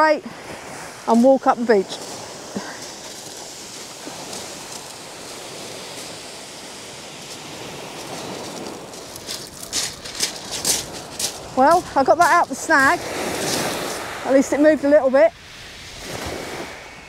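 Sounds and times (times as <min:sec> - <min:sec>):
footsteps on shingle: 0:01.1 - 0:14.2
surf breaking on shingle: 0:02.0 - 0:14.1.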